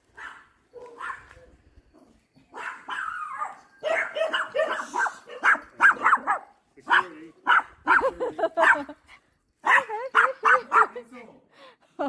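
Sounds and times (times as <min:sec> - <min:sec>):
dog yapping: 0:00.2 - 0:01.2, 0:02.5 - 0:06.4.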